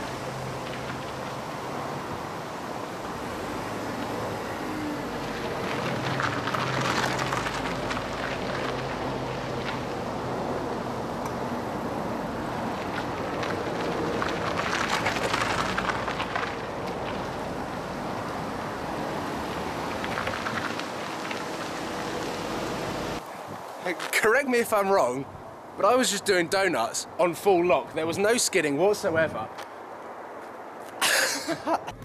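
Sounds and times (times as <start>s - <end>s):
tyres crunching on gravel: 0.0s - 10.9s, 12.1s - 23.2s.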